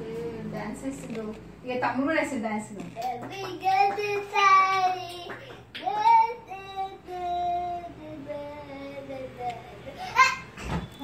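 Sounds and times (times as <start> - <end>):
small boy singing: 3.0 - 10.0.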